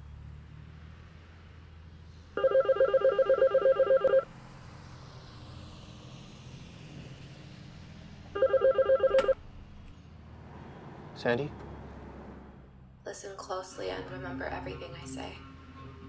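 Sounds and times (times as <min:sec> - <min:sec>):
payphone warbling ring: 0:02.4 - 0:04.2, 0:08.4 - 0:09.4.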